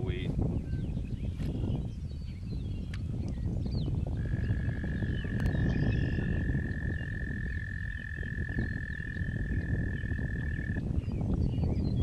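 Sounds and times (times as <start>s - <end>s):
wind rumble on microphone: 0.0s - 12.0s
frog trilling: 4.2s - 10.9s.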